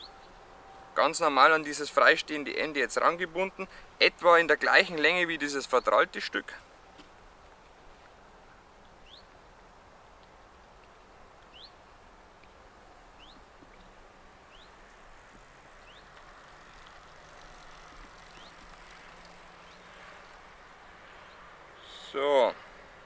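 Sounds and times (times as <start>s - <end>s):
bird rising chirp: 0.0s - 0.4s, 9.0s - 9.3s, 11.5s - 11.8s, 13.2s - 13.9s, 14.5s - 14.8s, 15.8s - 19.9s
faint outdoor background: 0.0s - 23.0s.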